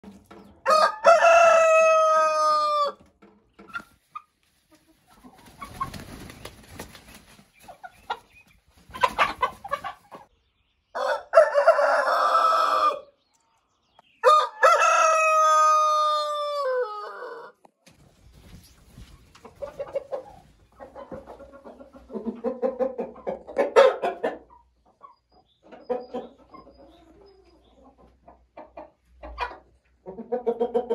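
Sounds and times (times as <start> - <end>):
chickens clucking: 0.0 - 30.9
rooster crowing: 0.6 - 3.0, 11.0 - 13.0, 14.2 - 17.6.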